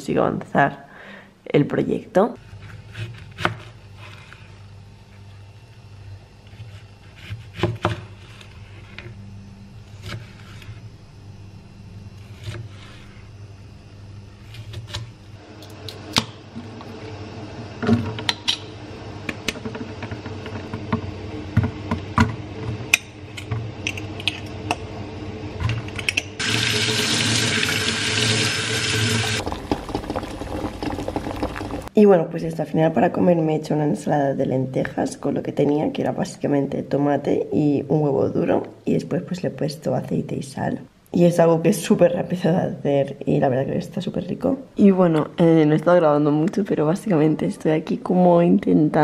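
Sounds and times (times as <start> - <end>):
steady low hum: 0.0 - 49.0
tap water running into colander: 26.4 - 31.9.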